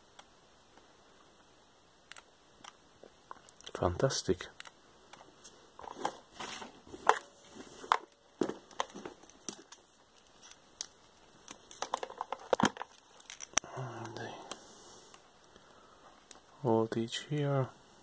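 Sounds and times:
camera handling clicks and rustles: 0:04.6 - 0:13.6.

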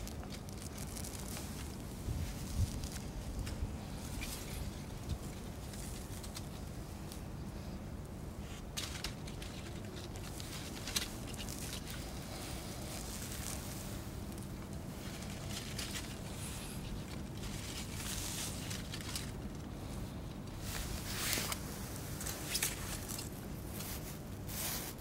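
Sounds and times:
leaves rustling and crackling: 0:00.0 - 0:25.0
low background noise: 0:00.0 - 0:25.0.

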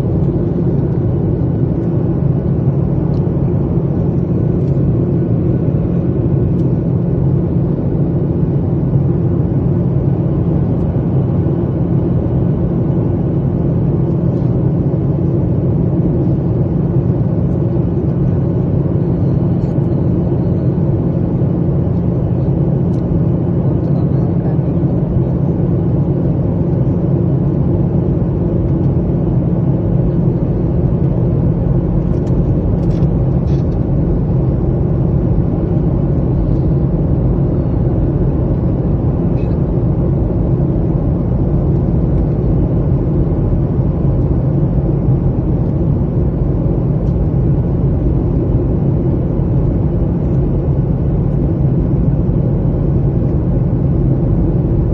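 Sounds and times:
jet engine and airflow rumble: 0:00.0 - 0:54.9
low hum: 0:00.0 - 0:54.9.

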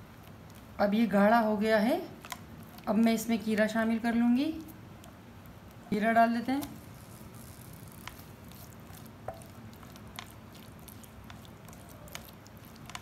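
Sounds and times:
wet squishing of stirred sauce: 0:00.0 - 0:06.0, 0:06.6 - 0:13.0.

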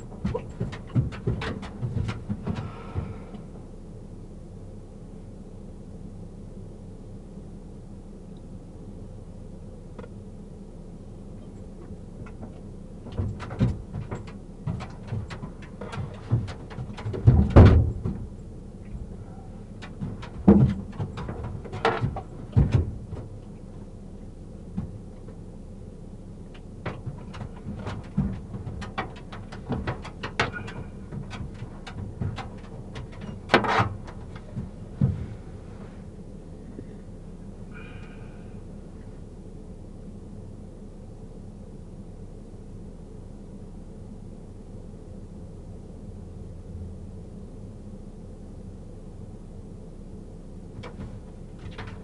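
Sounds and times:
knocks bumps and rustling: 0:00.0 - 0:03.8, 0:11.6 - 0:38.2, 0:50.7 - 0:52.0
steady low hum: 0:00.0 - 0:52.0.

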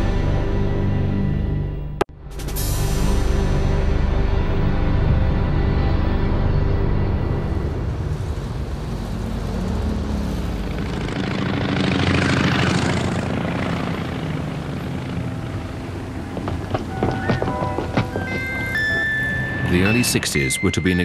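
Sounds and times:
vehicle passing: 0:06.4 - 0:21.0.

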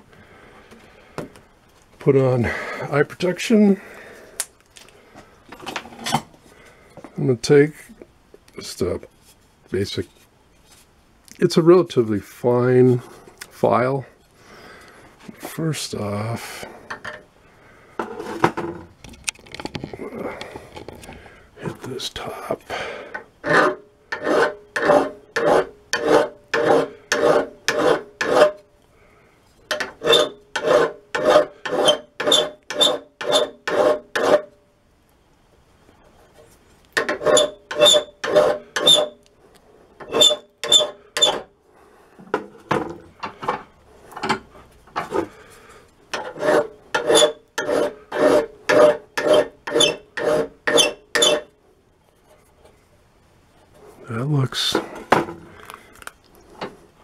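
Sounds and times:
file stroking metal: 0:23.4 - 0:28.6, 0:29.7 - 0:34.5, 0:37.0 - 0:39.2, 0:40.0 - 0:41.4, 0:46.1 - 0:51.5.

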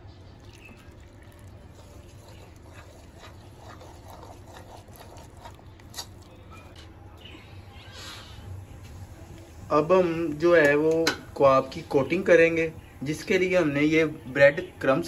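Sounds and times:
spoon scraping batter in bowl: 0:00.6 - 0:06.9.

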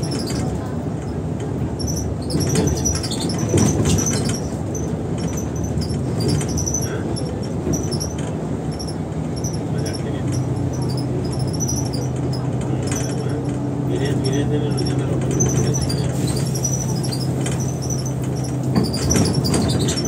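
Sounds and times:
bus engine and road rumble: 0:00.0 - 0:20.0
quick high squeaks: 0:01.8 - 0:07.0, 0:15.3 - 0:20.0.

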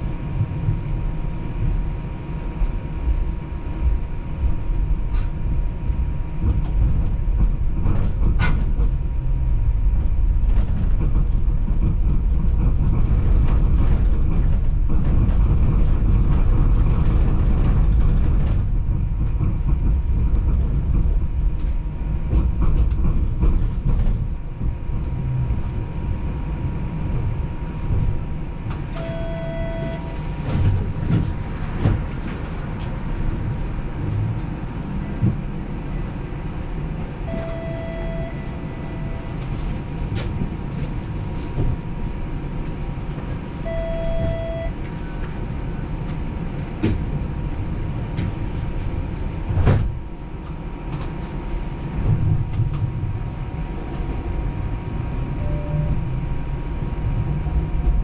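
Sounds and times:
streetcar rumbling on rails: 0:00.0 - 0:58.0
short electronic beeps: 0:29.0 - 0:30.1, 0:37.3 - 0:39.3, 0:43.7 - 0:44.7.

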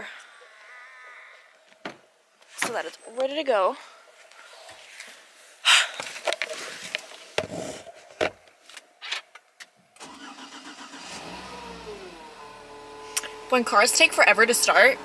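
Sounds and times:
car starter cranking: 0:10.0 - 0:14.0
car engine idling: 0:10.1 - 0:15.0.

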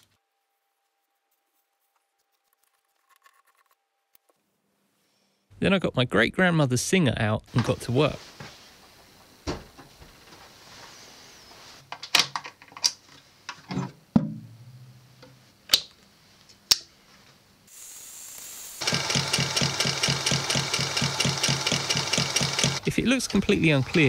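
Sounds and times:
sewing machine motor humming: 0:18.4 - 0:24.0
sewing machine stitching: 0:18.8 - 0:24.0.

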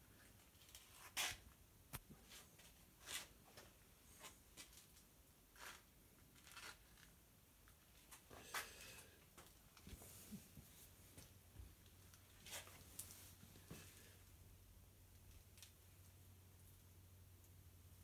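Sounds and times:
faint rustles and scuffs: 0:00.1 - 0:05.8, 0:07.7 - 0:14.2.

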